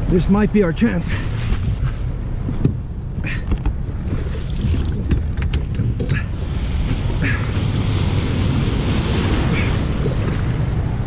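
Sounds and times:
wind buffeting microphone: 1.3 - 11.0
surf washing and fizzing: 3.9 - 5.1, 6.2 - 11.0
splashes against hull: 4.0 - 11.0.

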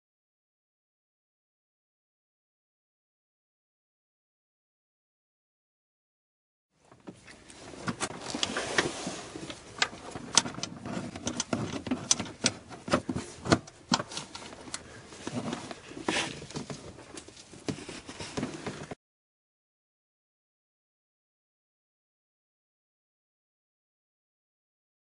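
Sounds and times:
rustling and rubbing: 7.1 - 19.0.

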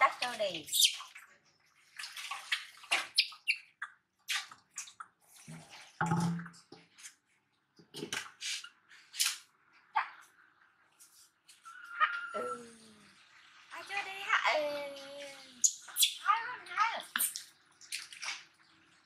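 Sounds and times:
water splashing in metal washbasin: 0.0 - 7.0, 17.4 - 19.0.

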